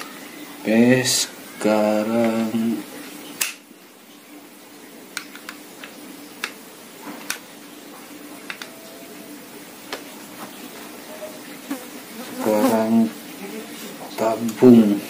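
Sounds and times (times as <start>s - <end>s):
faint steady hum: 0.0s - 15.0s
small parts clicking and tapping: 7.2s - 7.5s, 8.4s - 8.8s.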